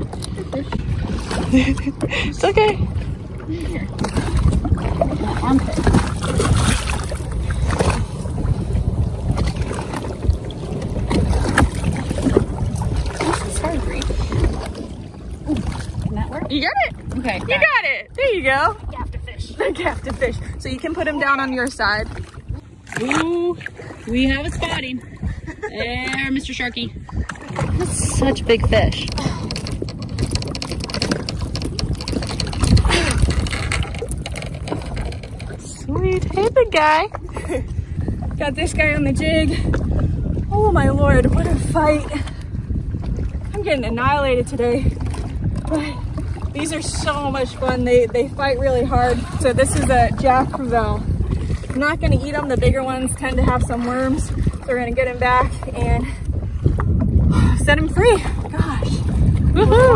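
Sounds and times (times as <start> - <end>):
water moving around jet ski: 0.0 - 59.9
wind rumbling on microphone: 0.0 - 59.9.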